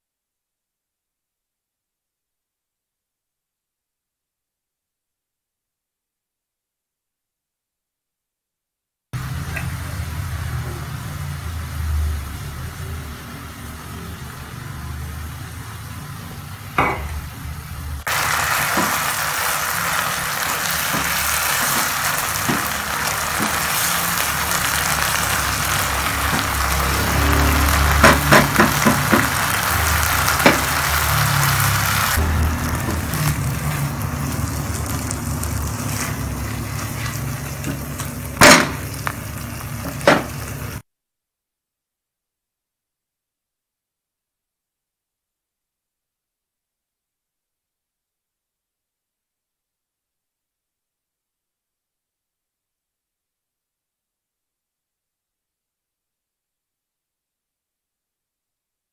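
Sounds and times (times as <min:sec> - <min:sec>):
onions sizzling in a frying pan: 0:09.2 - 0:40.8.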